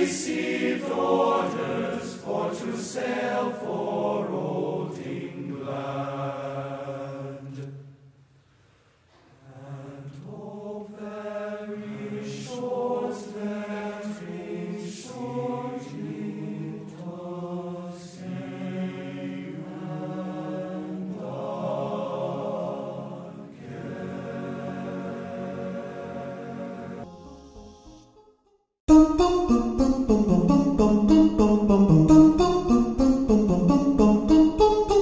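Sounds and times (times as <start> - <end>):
choral chanting: 0.0 - 8.0, 9.2 - 27.1.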